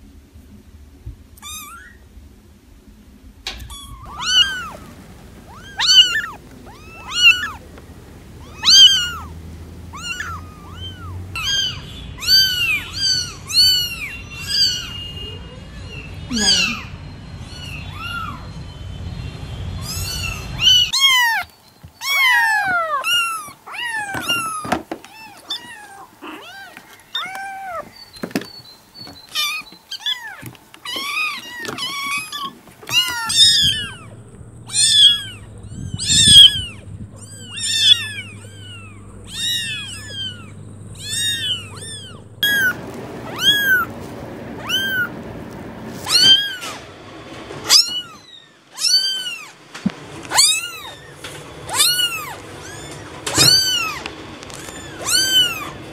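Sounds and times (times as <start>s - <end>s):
kittens meowing: 1.4s - 2.1s, 3.5s - 18.6s, 19.8s - 28.4s, 29.1s - 44.0s, 44.6s - 45.2s, 46.0s - 46.8s, 47.6s - 49.6s, 50.3s - 55.9s.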